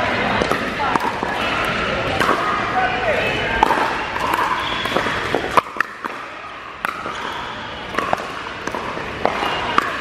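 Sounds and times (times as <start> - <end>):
paddles striking plastic ball: 6.8 - 10.0.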